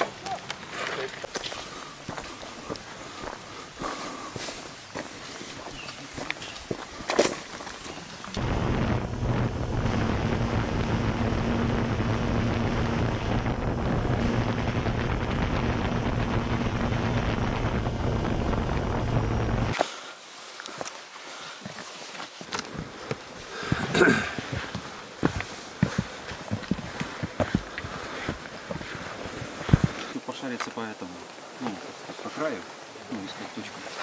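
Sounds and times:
footsteps on rocky trail: 0.0s - 8.4s, 19.8s - 30.8s
aircraft engine and wind noise: 8.4s - 19.8s.

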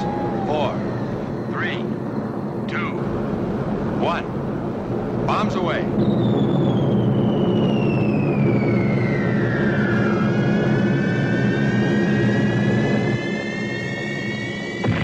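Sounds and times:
aircraft engines droning: 0.0s - 15.0s
whistle of falling bombs: 6.0s - 15.0s.

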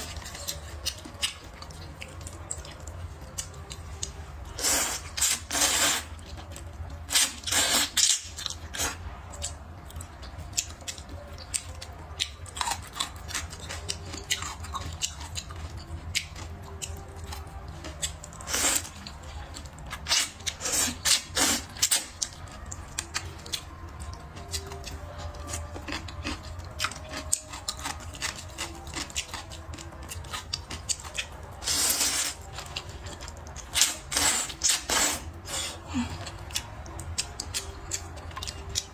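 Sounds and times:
wet chewing and mouth clicks: 0.0s - 38.9s
person slurping noodles: 4.6s - 6.1s, 34.1s - 36.0s.

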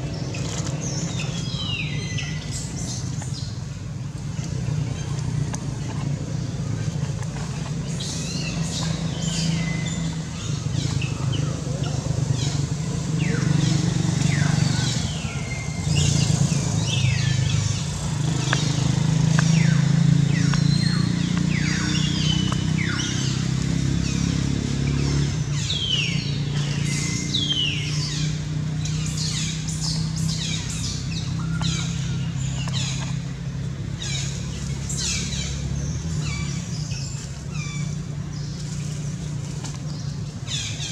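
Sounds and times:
birds chirping: 0.0s - 40.9s
low engine drone: 0.0s - 40.9s.

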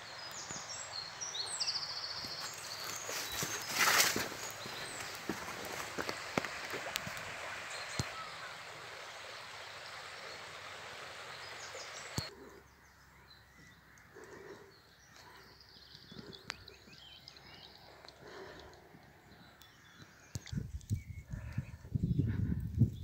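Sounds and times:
stream rushing: 0.0s - 12.3s
birds chirping faintly: 0.0s - 23.0s.

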